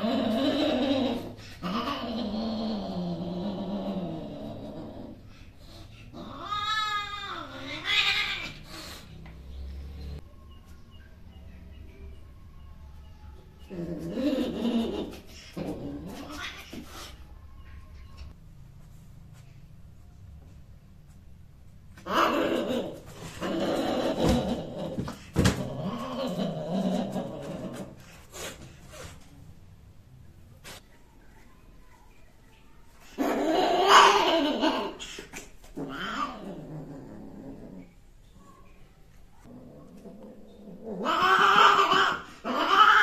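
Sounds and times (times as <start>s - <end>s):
cat yowling growl: 0.0s - 5.3s, 6.1s - 9.0s, 13.7s - 17.1s, 22.0s - 28.0s, 33.2s - 35.0s, 35.8s - 37.9s, 39.4s - 43.0s
cat yowling: 41.0s - 43.0s.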